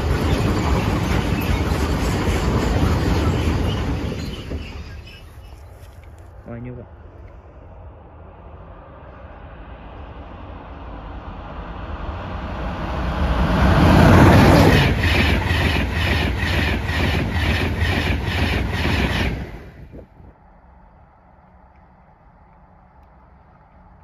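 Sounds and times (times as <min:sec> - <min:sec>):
train wheels clacking on track: 0:00.0 - 0:05.4, 0:13.6 - 0:19.9
passing train rumble: 0:00.0 - 0:24.0.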